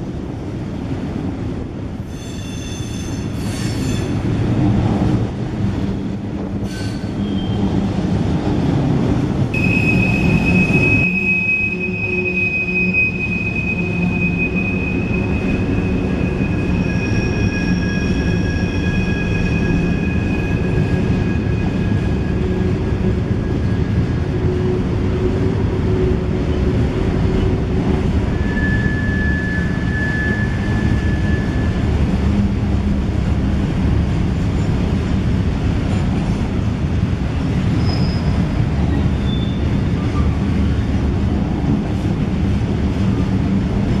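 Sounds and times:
train wheels rumbling on rail: 0.0 - 44.0
high-pitched wheel squeal: 2.1 - 4.2, 9.6 - 22.7, 28.3 - 31.8, 37.8 - 38.4.

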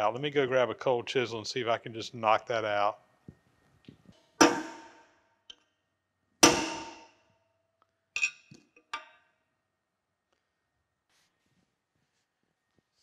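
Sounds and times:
hammer striking metal chisel: 4.4 - 5.1, 6.4 - 7.2.

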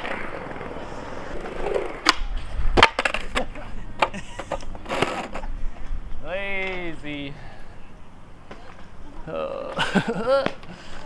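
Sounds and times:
skateboard and skater hitting ground: 0.0 - 5.5
skateboard wheels rolling on concrete: 0.0 - 11.0.

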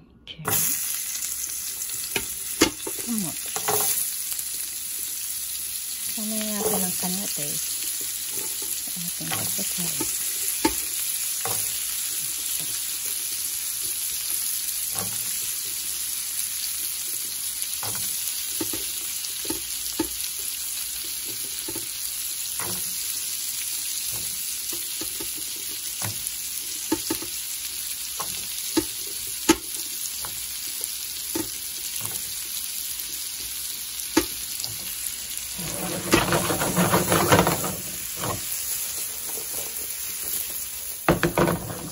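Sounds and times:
vegetables sizzling in oil: 0.5 - 41.9
pieces knocking on pan: 9.2 - 11.8, 17.8 - 20.2, 24.1 - 27.4, 31.2 - 32.4, 34.1 - 35.0, 35.6 - 38.5, 40.3 - 41.9
stirring clatter: 35.5 - 38.5.

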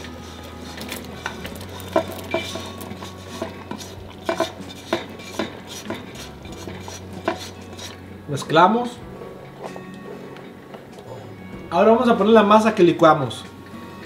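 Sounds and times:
spatula clanking on skillet: 1.9 - 8.0.

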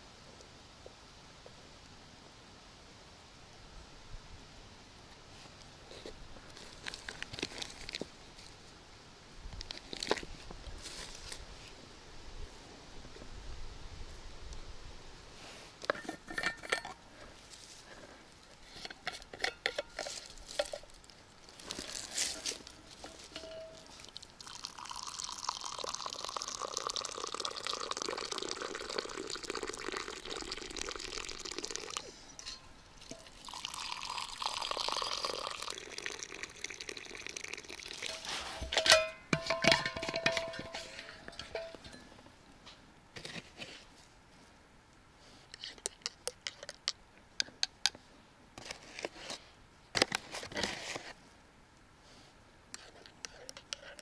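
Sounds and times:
liquid pouring and dripping: 23.3 - 32.1, 33.0 - 38.3.

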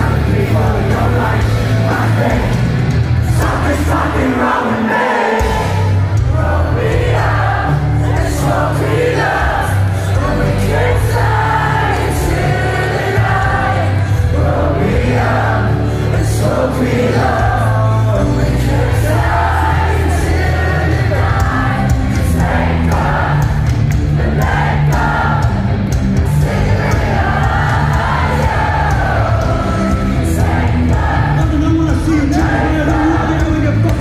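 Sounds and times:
live rock music with singing: 0.0 - 34.0.

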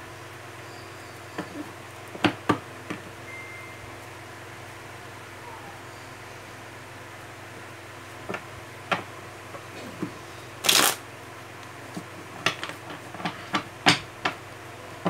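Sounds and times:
cards being shuffled: 10.6 - 11.0.

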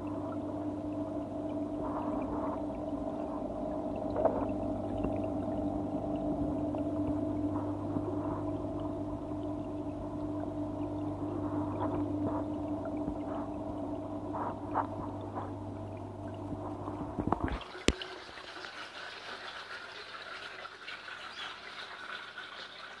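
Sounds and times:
muffled underwater hum: 0.0 - 18.0
water trickling: 0.0 - 23.0
water splashing: 1.5 - 23.0.

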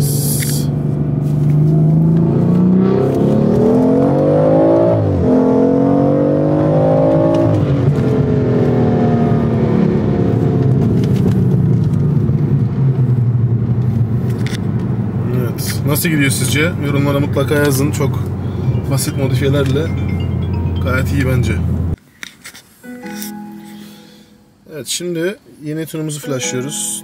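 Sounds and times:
car engine accelerating hard: 0.8 - 14.3.

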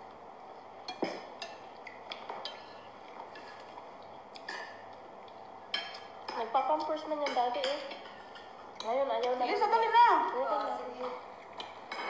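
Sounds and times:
spoon clinking on ceramic plates: 5.7 - 6.4, 7.2 - 9.7, 11.0 - 12.0.

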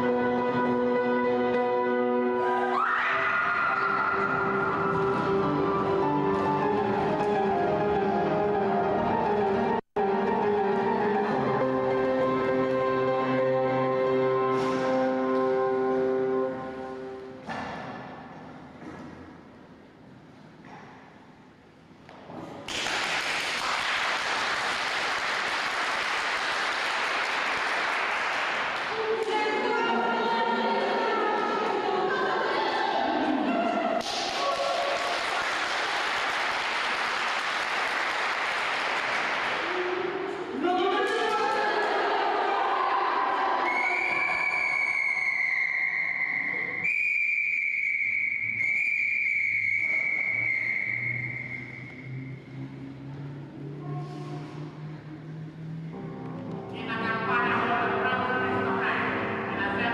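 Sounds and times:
music with sustained notes: 0.0 - 17.4, 51.6 - 59.9
group of people clapping: 22.6 - 29.5, 34.0 - 40.4.

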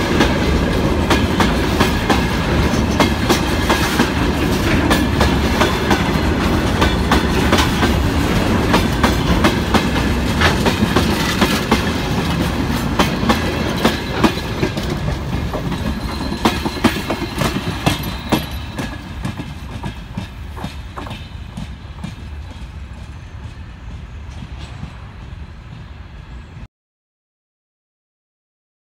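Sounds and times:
freight wagons rumbling on rails: 0.0 - 26.7.

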